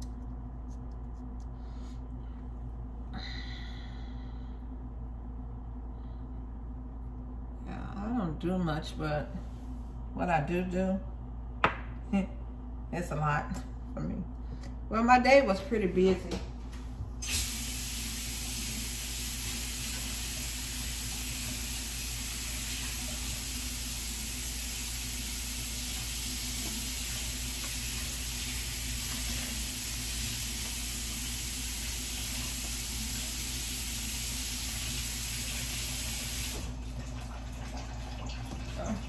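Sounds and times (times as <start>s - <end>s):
low electrical hum: 0.0s - 39.0s
tap water running into sink: 17.3s - 39.0s.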